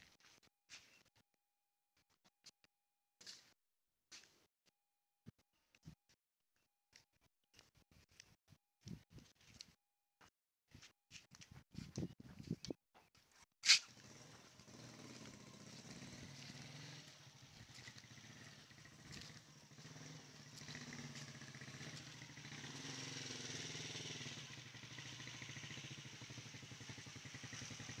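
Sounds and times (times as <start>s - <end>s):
small motorcycle engine running: 13.8s - 28.0s.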